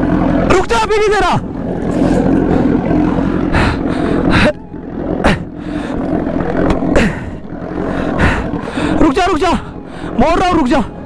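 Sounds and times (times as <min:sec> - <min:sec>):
motorcycle engine idling: 0:00.0 - 0:11.0
people gasping with effort: 0:01.9 - 0:09.0.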